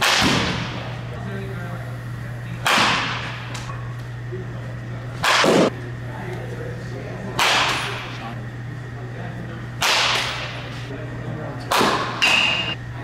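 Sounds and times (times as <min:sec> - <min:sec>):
baseball bat hitting ball: 0:00.0 - 0:00.9, 0:02.6 - 0:03.5, 0:05.2 - 0:05.7, 0:09.8 - 0:10.5, 0:11.7 - 0:12.7.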